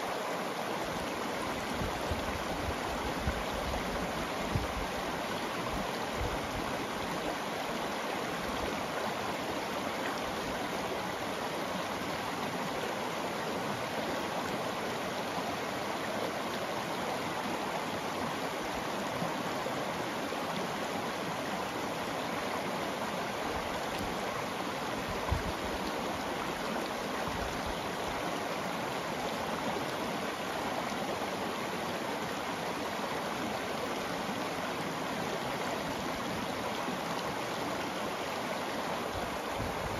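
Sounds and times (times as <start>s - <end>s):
river water flowing over rocks: 0.0s - 39.9s.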